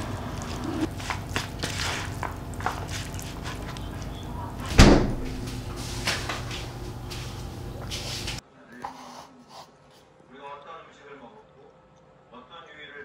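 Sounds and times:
heavy thump: 0:04.7 - 0:05.5.

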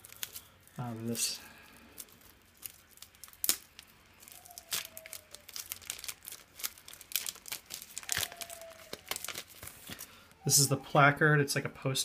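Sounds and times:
plastic bag crinkling: 0:00.0 - 0:10.6.

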